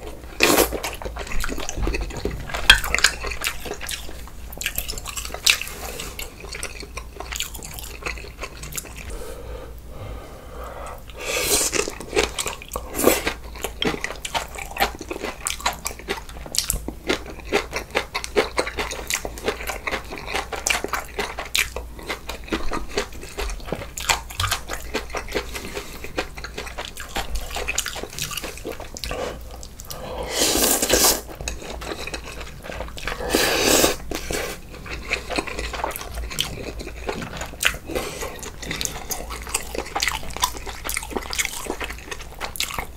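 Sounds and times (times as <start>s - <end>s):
chewing and crunching: 0.0s - 9.2s, 11.1s - 42.9s
slurping noodles and broth: 10.7s - 13.4s, 28.4s - 35.4s.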